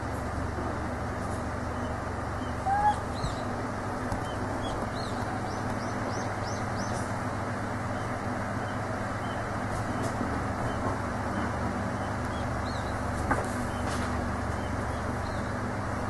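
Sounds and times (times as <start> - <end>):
steady background hum: 0.0 - 16.0
brief animal call: 2.5 - 3.5.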